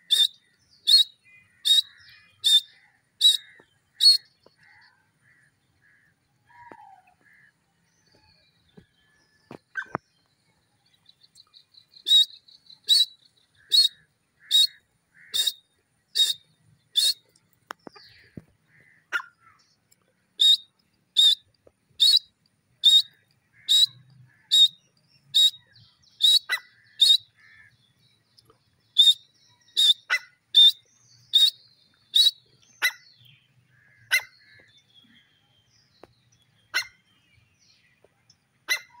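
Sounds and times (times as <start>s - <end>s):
francolin calling shrilly: 0.0s - 4.9s, 11.9s - 17.3s, 20.4s - 27.7s, 29.0s - 33.1s.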